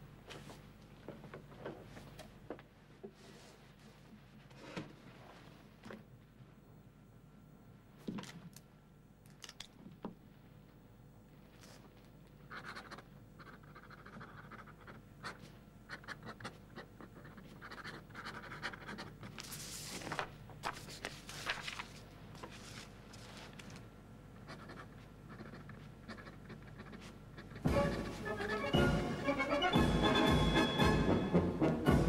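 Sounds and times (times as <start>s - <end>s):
pen nib scratching on paper: 12.5s - 19.3s, 24.4s - 28.6s.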